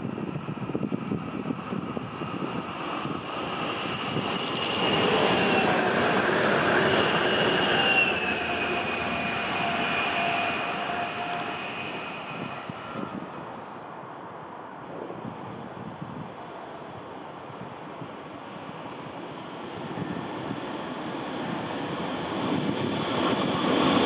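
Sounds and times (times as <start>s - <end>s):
electric train passing: 0.0s - 14.5s, 18.2s - 24.0s
high train whine: 0.0s - 24.0s.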